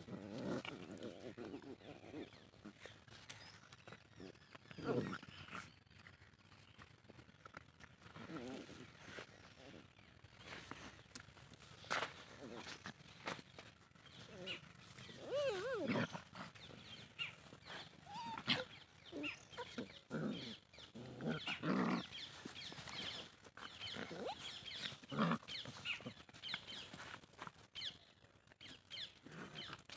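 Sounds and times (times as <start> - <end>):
scuffling in loose dirt: 0.0 - 29.9
puppies yelping and growling: 14.1 - 26.2.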